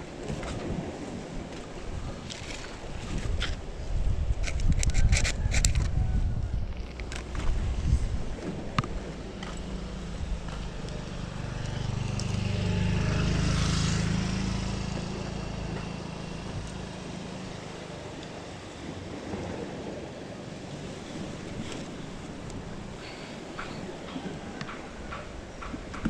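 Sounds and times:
passing motor engine drone: 0:08.5 - 0:20.0.

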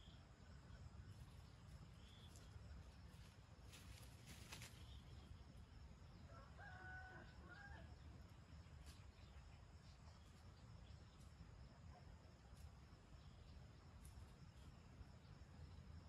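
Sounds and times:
faint rooster crowing: 0:06.2 - 0:08.1.

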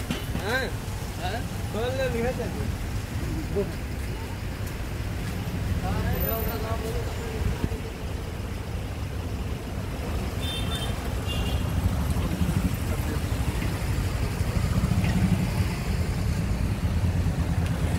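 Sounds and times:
car engines idling: 0:00.0 - 0:17.9
motorcycles passing: 0:05.4 - 0:17.9.

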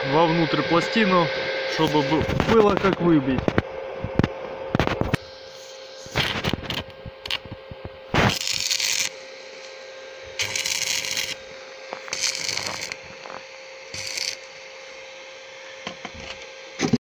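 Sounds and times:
faint steady hum: 0:00.0 - 0:17.0
arc welding crackling: 0:01.7 - 0:15.0.

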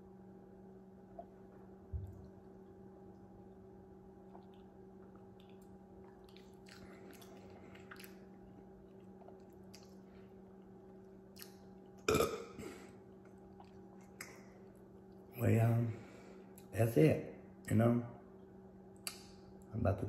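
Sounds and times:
steady low hum: 0:00.0 - 0:20.0
sipping and mouth sounds: 0:04.2 - 0:15.2
loud burp: 0:12.1 - 0:12.8.

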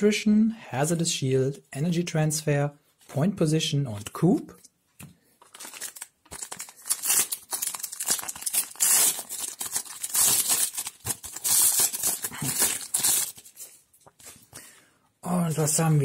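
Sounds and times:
foil wrapper crinkling and tearing: 0:05.4 - 0:14.3.

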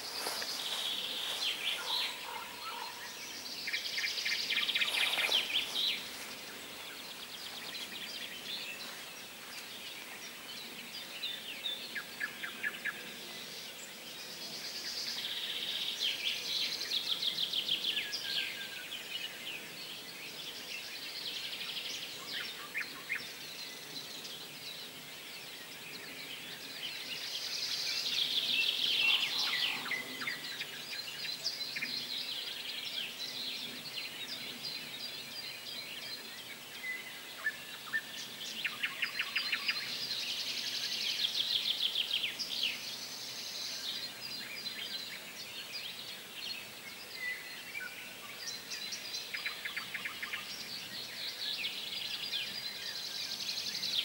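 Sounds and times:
background hiss: 0:00.0 - 0:54.0.

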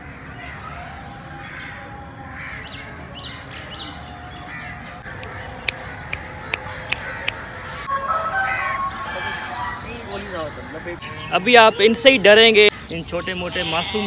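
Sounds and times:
crows cawing: 0:01.4 - 0:02.8, 0:06.5 - 0:07.5, 0:08.3 - 0:11.3.

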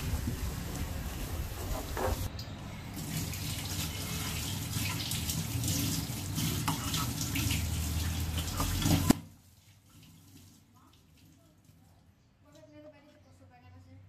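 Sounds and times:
spatula scraping a frying pan: 0:06.5 - 0:09.1.

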